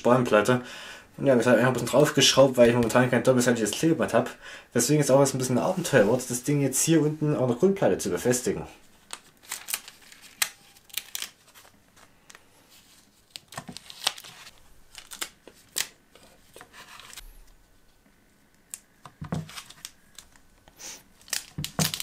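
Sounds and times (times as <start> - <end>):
tape crackling: 9.0 - 22.0
adhesive tape ripping off roll: 21.2 - 22.0.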